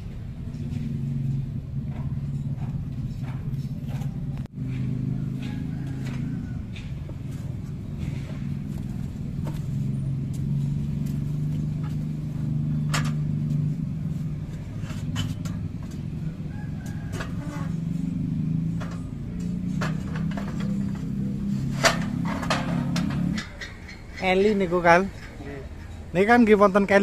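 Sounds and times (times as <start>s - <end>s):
engine running: 0.0s - 27.0s
metal clanks: 0.5s - 26.2s.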